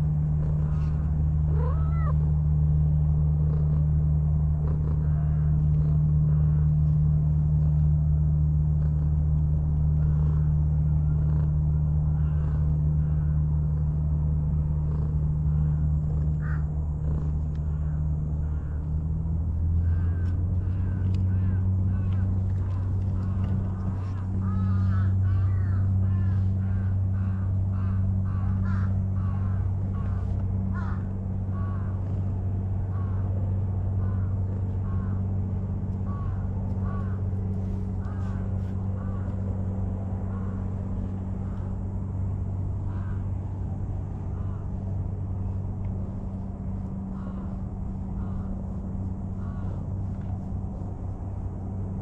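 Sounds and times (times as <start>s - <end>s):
steady low hum: 0.0s - 52.0s
bird caws: 0.4s - 2.2s, 4.6s - 7.0s, 10.0s - 11.5s, 12.1s - 14.0s, 14.9s - 32.2s, 32.9s - 33.4s, 34.0s - 41.8s, 42.8s - 43.5s, 44.1s - 50.5s.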